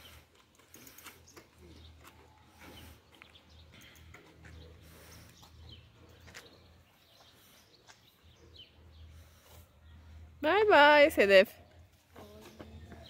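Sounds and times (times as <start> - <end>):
distant bird chirps: 0.0 - 10.4.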